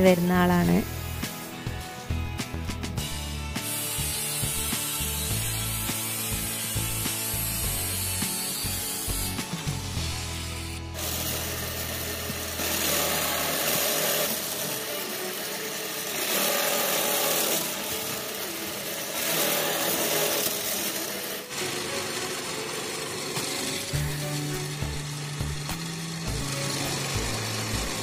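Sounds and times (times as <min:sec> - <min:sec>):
drill press boring through plywood: 0:11.0 - 0:28.0.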